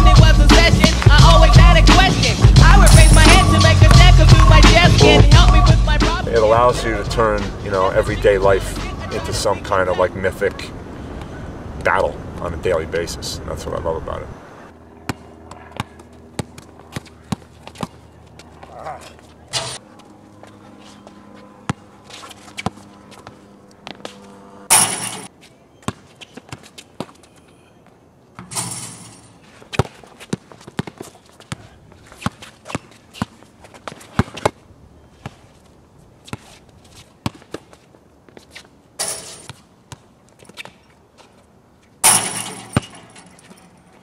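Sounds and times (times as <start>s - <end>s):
basketball bouncing on hard court: 3.8s - 4.4s, 15.1s - 18.0s, 29.7s - 31.6s, 32.2s - 34.6s.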